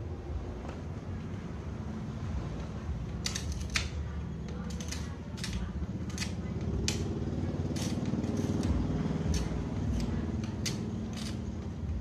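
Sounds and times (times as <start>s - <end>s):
glass clicking and crunching: 3.2s - 4.0s, 4.6s - 7.0s.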